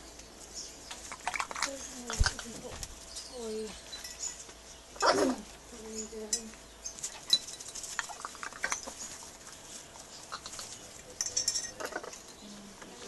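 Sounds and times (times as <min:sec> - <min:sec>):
clinks against a bowl: 0:03.8 - 0:05.1, 0:06.0 - 0:06.6, 0:07.2 - 0:08.9, 0:11.1 - 0:12.5.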